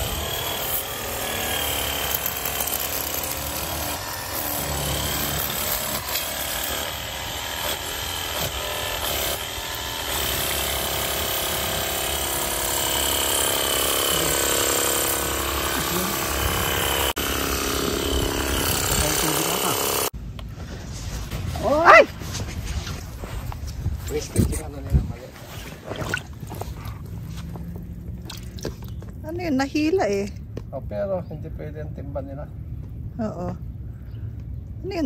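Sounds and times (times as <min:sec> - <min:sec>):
pressure washer pump whining: 0:06.9 - 0:20.1.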